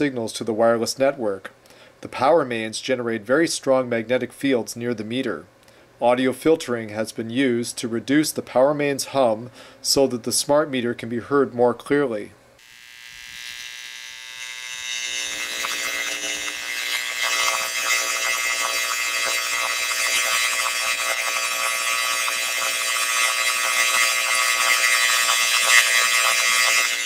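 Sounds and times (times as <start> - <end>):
electric buzz with hiss: 12.6 - 27.0.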